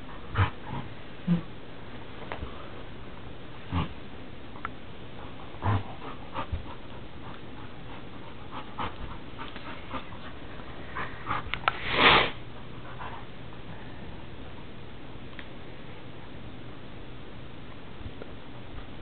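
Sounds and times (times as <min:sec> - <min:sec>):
dogs panting and sniffing: 0:05.0 - 0:13.7.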